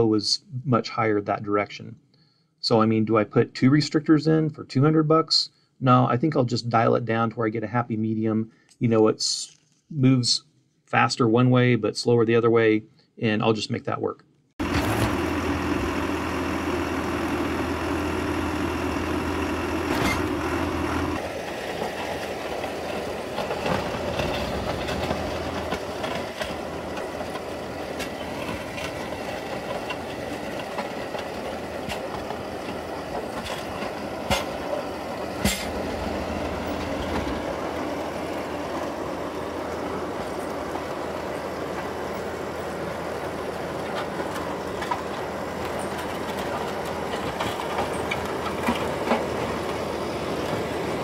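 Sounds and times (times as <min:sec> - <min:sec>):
plow blade scraping snow on gravel: 0:14.6 - 0:51.0
tractor diesel engine running: 0:14.6 - 0:51.0.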